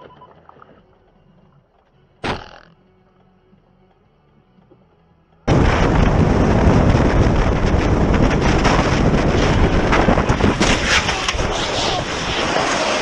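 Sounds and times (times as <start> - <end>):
wind roar buffeting microphone: 5.5 - 12.8.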